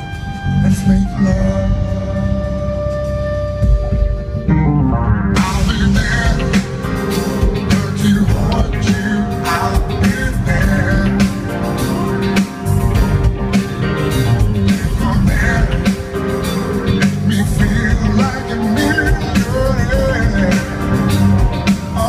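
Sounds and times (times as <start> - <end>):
live band playing: 0.0 - 22.0
man singing: 0.5 - 2.5, 5.3 - 12.5, 14.2 - 22.0.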